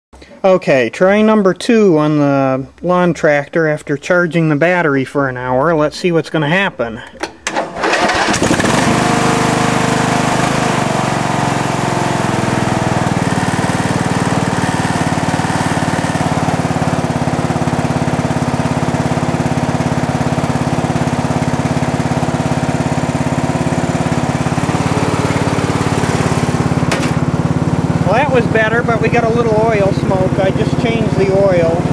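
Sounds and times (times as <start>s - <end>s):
lawn tractor engine running: 7.2s - 31.9s.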